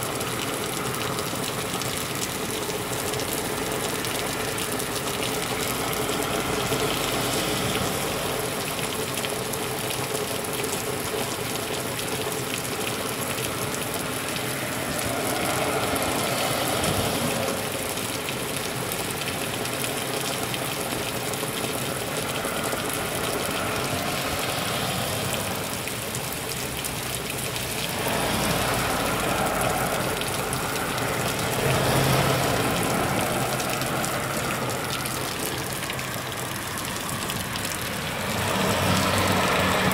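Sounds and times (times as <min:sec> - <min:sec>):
heavy rain on leaves and pavement: 0:00.0 - 0:39.9.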